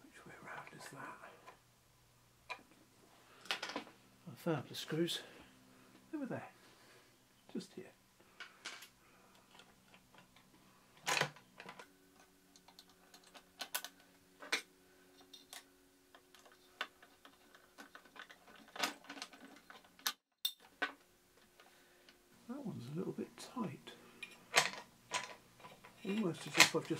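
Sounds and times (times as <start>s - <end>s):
faint steady hum: 0.0s - 26.9s.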